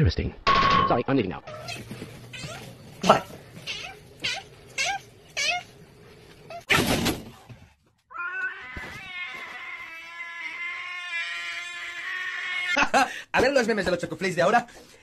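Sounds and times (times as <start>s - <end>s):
cat meowing: 8.1s - 12.8s
cat yowling: 8.1s - 12.8s.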